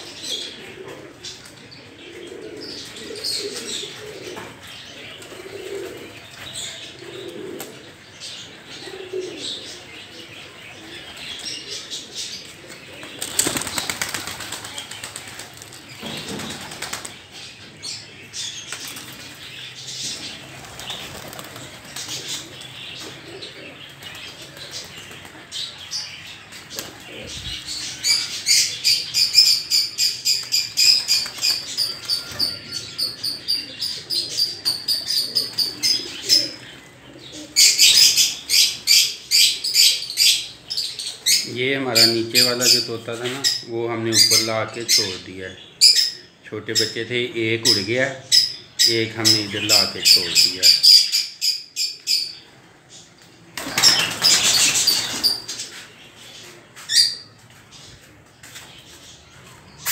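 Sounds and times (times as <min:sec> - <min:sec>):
pigeons cooing: 0:00.0 - 0:59.9
wings flapping: 0:13.0 - 0:17.2, 0:20.4 - 0:22.6, 0:30.4 - 0:32.5, 0:53.6 - 0:55.4.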